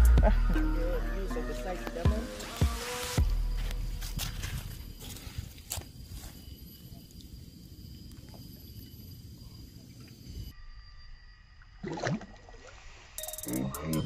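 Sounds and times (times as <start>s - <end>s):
water splash: 11.8s - 13.0s
water swirling: 11.8s - 13.2s.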